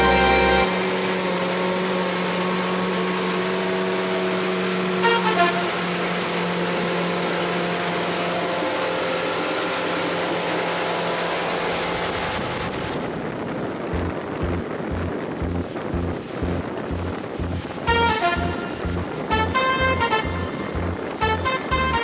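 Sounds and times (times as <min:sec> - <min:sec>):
higher tones: 0:00.0 - 0:01.4, 0:13.9 - 0:22.0
motorboat engine drone: 0:00.0 - 0:22.0
water and wind noise: 0:00.0 - 0:22.0.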